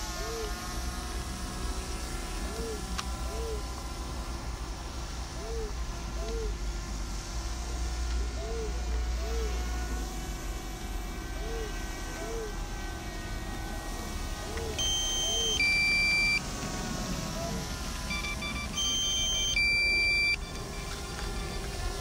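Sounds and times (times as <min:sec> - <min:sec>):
two-tone electronic warning beeps: 0:14.6 - 0:16.4, 0:17.5 - 0:22.0.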